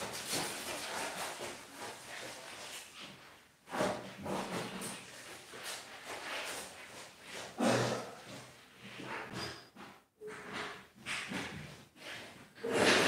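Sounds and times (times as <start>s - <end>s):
rustling: 0.0s - 7.5s.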